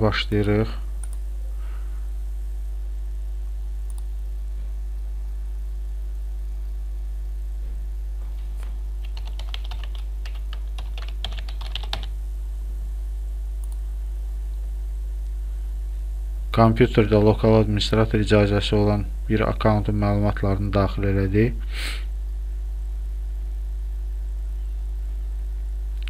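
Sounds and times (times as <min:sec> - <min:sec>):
steady low hum: 0:00.0 - 0:26.0
typing on computer keyboard: 0:09.0 - 0:12.1.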